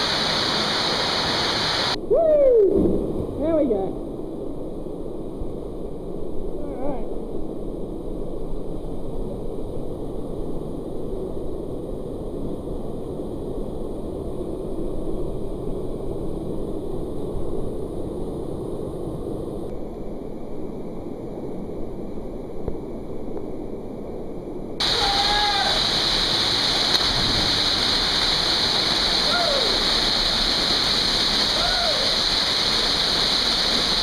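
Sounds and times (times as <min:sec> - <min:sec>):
creek water rushing: 0:00.0 - 0:02.0, 0:24.8 - 0:34.0
small waterfall splashing into pool: 0:24.8 - 0:34.0.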